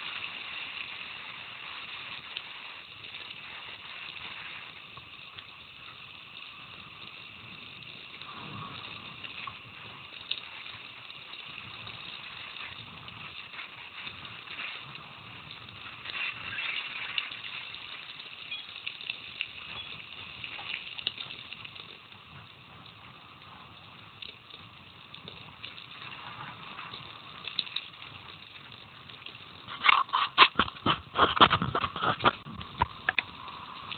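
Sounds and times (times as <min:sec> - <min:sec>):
tyres hissing on gravel: 0:11.7 - 0:18.6
bike clicks and rattles: 0:29.6 - 0:33.4.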